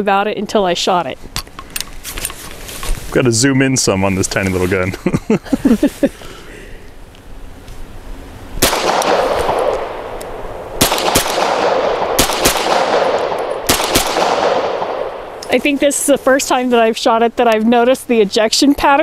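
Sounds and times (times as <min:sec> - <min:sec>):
pistol shots with echo: 0:08.6 - 0:15.4.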